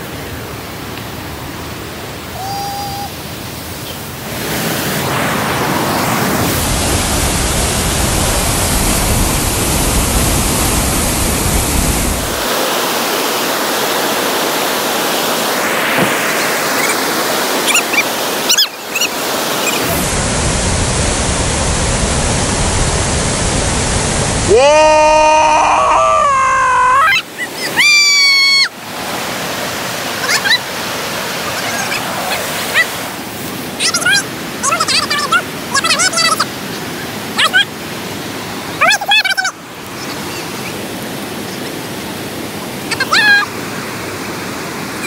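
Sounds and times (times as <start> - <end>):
rushing river rapids: 0.0 - 24.9, 27.0 - 45.0.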